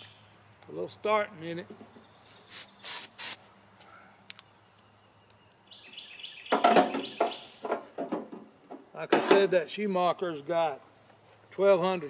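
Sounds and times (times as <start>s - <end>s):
birds chirping: 0.0s - 8.0s
rustling and clattering handling: 6.6s - 9.5s.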